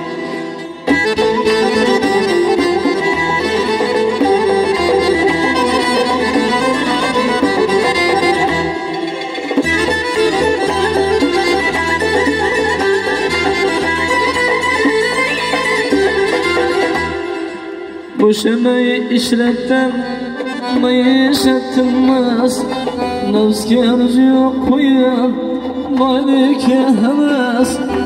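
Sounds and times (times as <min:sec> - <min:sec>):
accordion: 0:00.0 - 0:28.0
violin melody: 0:00.0 - 0:28.0
frame drum: 0:00.9 - 0:08.8, 0:09.5 - 0:17.4.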